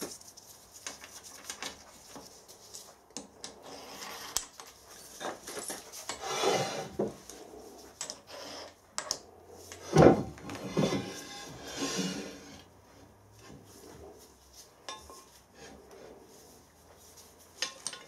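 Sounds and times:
metal vice scraping: 0:06.0 - 0:07.0, 0:09.7 - 0:12.7
metal clicks and knocks: 0:17.6 - 0:18.0.

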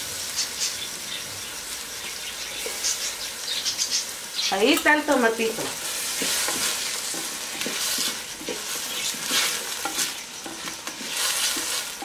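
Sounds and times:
vegetables sizzling in hot oil: 0:00.0 - 0:12.0
wooden spoon scraping a pot: 0:05.6 - 0:12.0.

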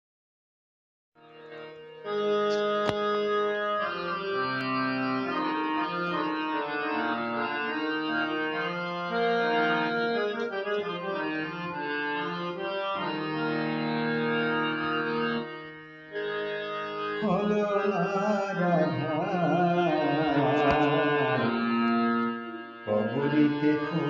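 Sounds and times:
electronic keyboard melody: 0:01.2 - 0:24.0
short click: 0:02.4 - 0:03.1, 0:20.5 - 0:21.0.

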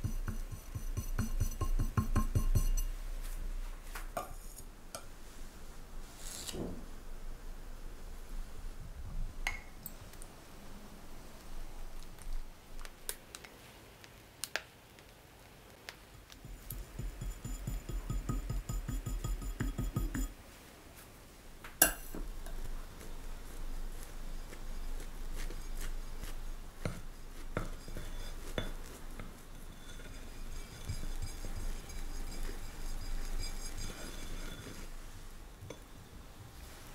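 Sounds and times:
spatula spreading buttercream: 0:00.0 - 0:02.9, 0:22.4 - 0:35.1
tools clicking and tapping: 0:00.0 - 0:02.9, 0:16.5 - 0:20.3
metal scraper smoothing icing: 0:25.4 - 0:34.9.

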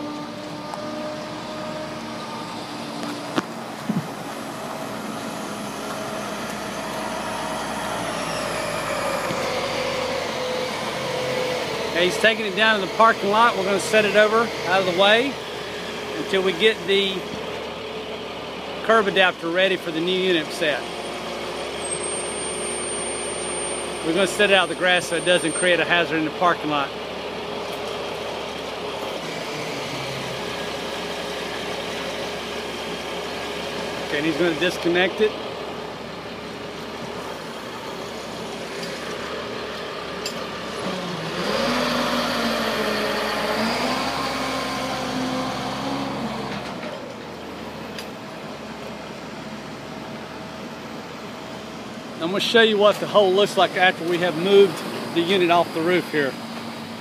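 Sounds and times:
crane running with thin whine: 0:00.0 - 0:57.0
truck engine drone: 0:00.0 - 0:57.0.

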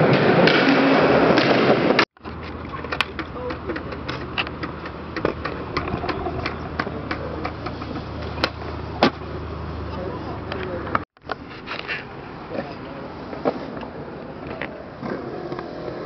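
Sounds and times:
skateboard clacks on concrete and rails: 0:00.0 - 0:09.2
skateboard wheels rolling on concrete: 0:00.0 - 0:16.0.

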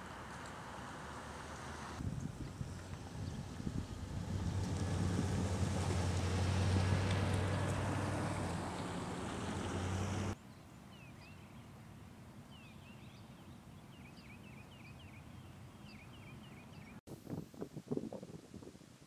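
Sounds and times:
vehicle engine hum on wet road: 0:00.0 - 0:10.4
small birds chirping: 0:12.5 - 0:17.0.

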